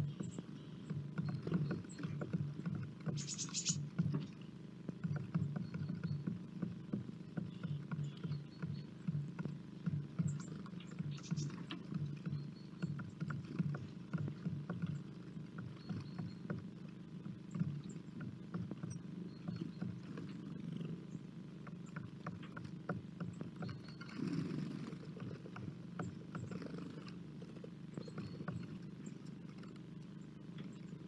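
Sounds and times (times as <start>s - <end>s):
low hum: 0.0s - 31.0s.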